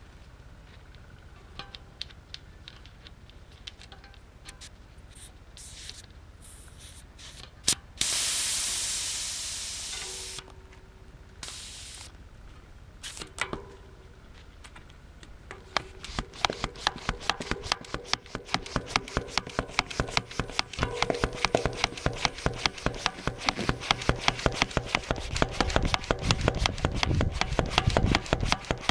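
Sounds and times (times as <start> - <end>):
air hissing out of tyre valve: 5.6 - 10.4, 11.4 - 12.1, 13.0 - 13.2
hand pump strokes: 15.7 - 28.9.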